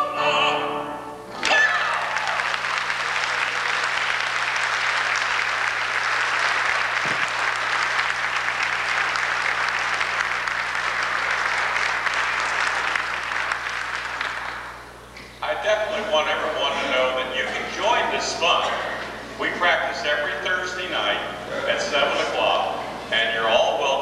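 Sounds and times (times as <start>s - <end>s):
audience applauding: 1.3s - 15.0s.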